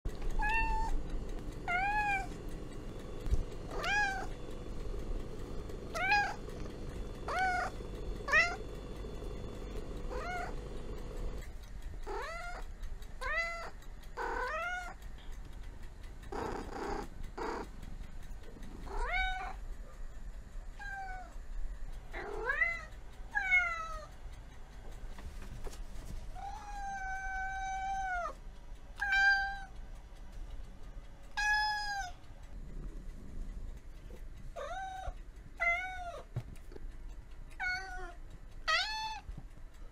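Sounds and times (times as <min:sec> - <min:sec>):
low steady hum: 0:00.1 - 0:39.9
cat meowing: 0:00.3 - 0:01.0, 0:01.7 - 0:02.3, 0:03.7 - 0:04.3, 0:05.9 - 0:06.4, 0:07.3 - 0:07.7, 0:08.3 - 0:08.6, 0:10.1 - 0:10.6, 0:13.2 - 0:15.0, 0:26.4 - 0:28.4, 0:31.4 - 0:32.2, 0:37.6 - 0:39.3.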